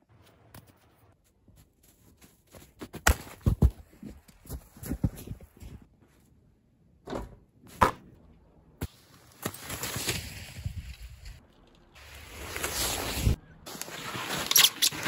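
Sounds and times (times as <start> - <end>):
snow crunching and scraping: 0.0 - 6.2, 8.8 - 11.4, 12.0 - 15.0.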